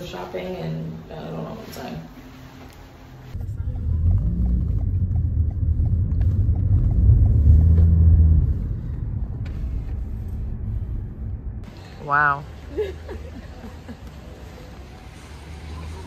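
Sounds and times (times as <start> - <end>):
car road and engine rumble: 3.3 - 16.0.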